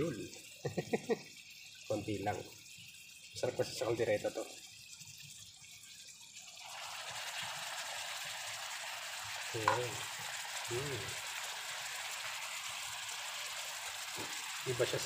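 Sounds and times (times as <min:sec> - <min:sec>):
beef sizzling in a wok: 0:00.0 - 0:15.0
metal spoon clinking on pan: 0:09.6 - 0:10.0.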